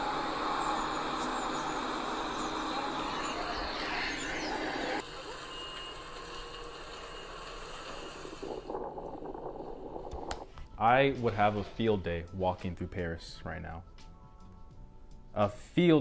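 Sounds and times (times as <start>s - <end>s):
laptop speakers playing video soundtrack: 0.0s - 6.0s.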